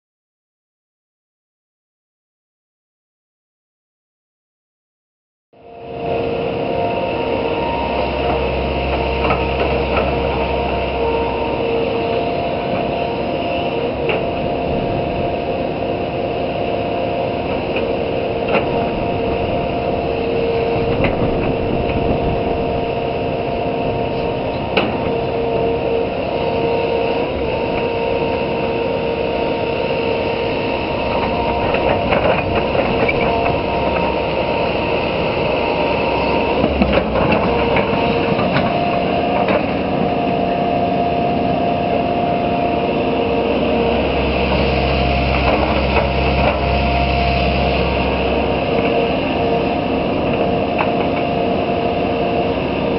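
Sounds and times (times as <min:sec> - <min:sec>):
excavator engine and hydraulics whine: 0:05.6 - 0:52.9.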